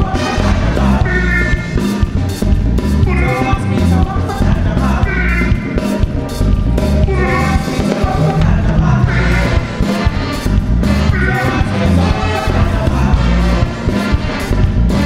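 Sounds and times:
man singing: 0.0 - 2.0, 3.0 - 15.0
drum kit and bass: 0.0 - 15.0
saxophones and trumpets: 0.0 - 15.0.

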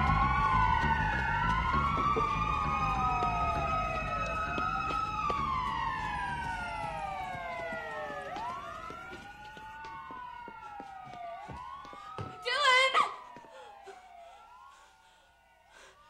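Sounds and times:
emergency sirens wailing: 0.0 - 16.0.

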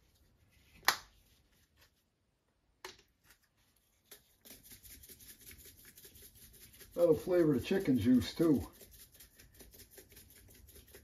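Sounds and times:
seasoning rattle: 4.4 - 11.0.

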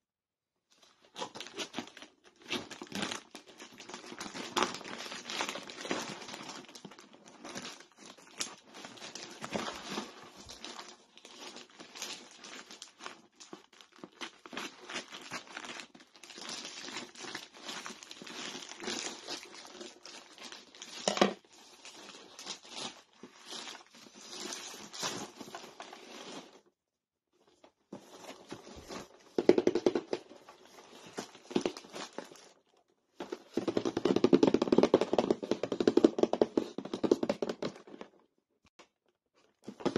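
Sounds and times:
plastic tearing: 1.1 - 26.6
plastic bag crinkling: 1.2 - 26.6.

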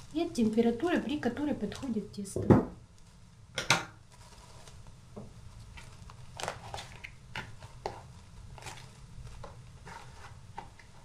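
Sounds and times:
cling film crinkling: 4.0 - 11.0.

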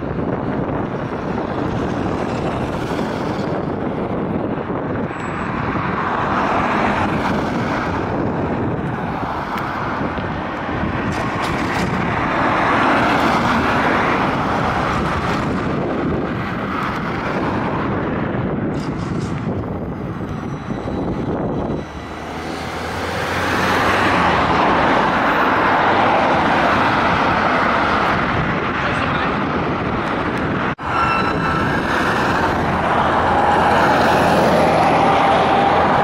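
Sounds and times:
road traffic: 0.0 - 36.0
trolleybus driving past: 30.8 - 36.0.

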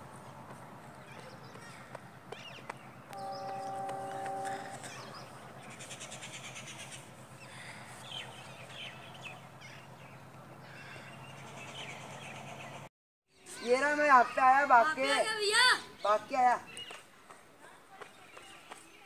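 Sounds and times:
low steady hum: 0.0 - 12.8
birds chirping and twittering: 0.6 - 14.4, 15.7 - 17.2.

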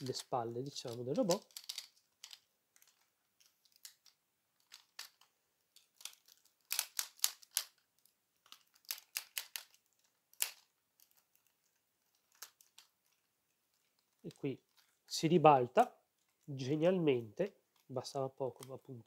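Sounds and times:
plastic toy parts clicking: 0.0 - 14.8.

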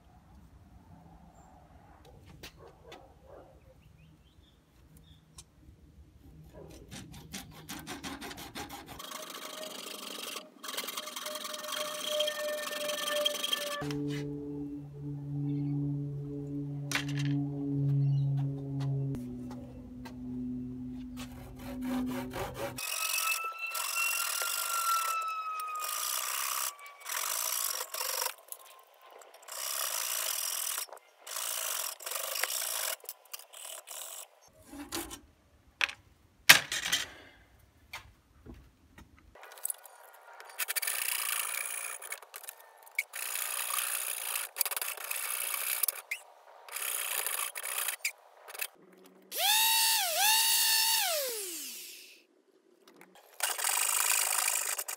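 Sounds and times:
hacksaw rasping through leather: 6.9 - 9.4.

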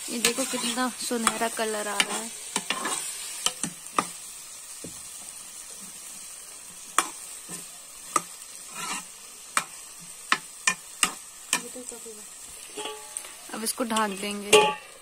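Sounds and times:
vegetables sizzling: 0.0 - 15.0.

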